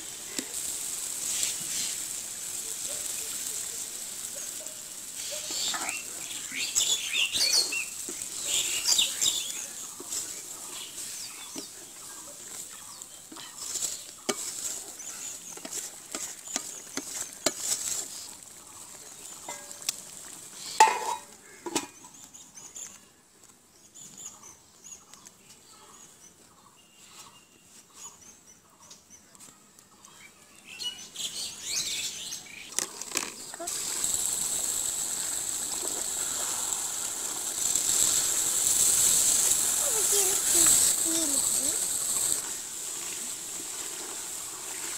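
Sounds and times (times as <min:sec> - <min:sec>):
birds calling faintly: 0:00.1 - 0:43.4
wooden spatula scraping a pot: 0:04.5 - 0:22.0
knocks against metal pot: 0:20.8 - 0:22.0.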